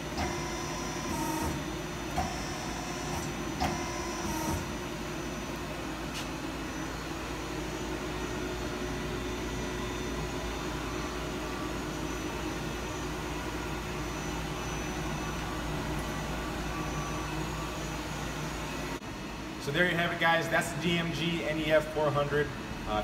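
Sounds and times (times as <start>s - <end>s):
lathe humming with tones: 0.0s - 19.5s.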